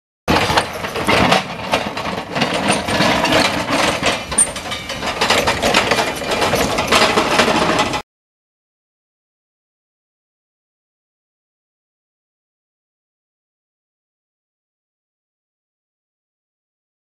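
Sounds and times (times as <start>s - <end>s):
forklift truck running: 0.3s - 8.0s
knocks and rattles: 0.3s - 8.0s
plough blade scraping snow: 0.3s - 8.0s.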